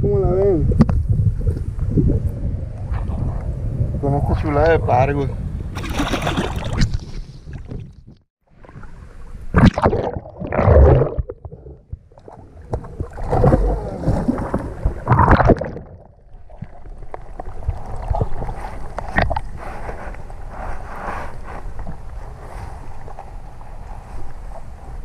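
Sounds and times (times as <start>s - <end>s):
water sloshing over microphone: 5.7s - 25.0s
swim fins splashing water: 5.8s - 7.8s.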